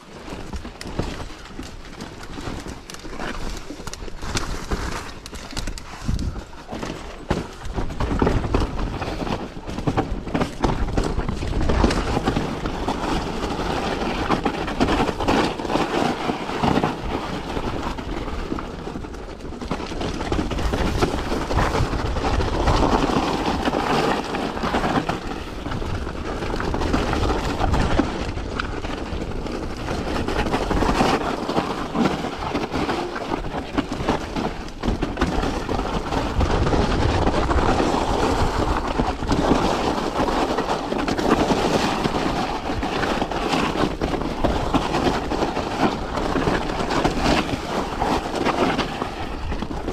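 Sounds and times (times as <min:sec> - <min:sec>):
bike rattling: 0:00.0 - 0:49.9.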